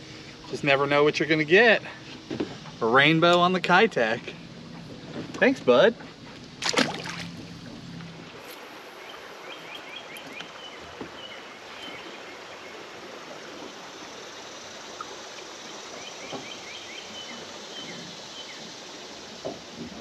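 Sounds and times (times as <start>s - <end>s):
flowing river water: 0.0s - 20.0s
songbird chirping: 8.8s - 19.6s.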